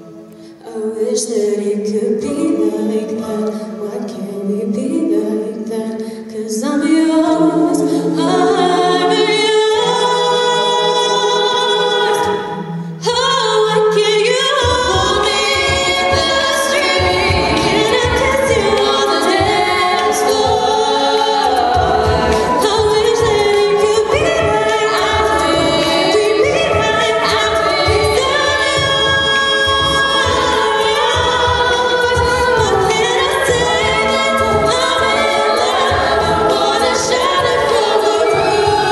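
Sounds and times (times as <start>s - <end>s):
women singing a cappella: 0.0s - 38.9s
vocal percussion beat: 7.3s - 38.9s
sung bass line: 14.8s - 38.9s.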